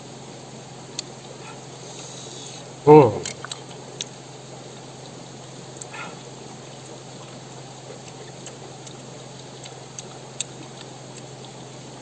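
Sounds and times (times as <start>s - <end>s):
person chewing crunchy fruit: 0.9s - 4.2s, 6.9s - 12.0s.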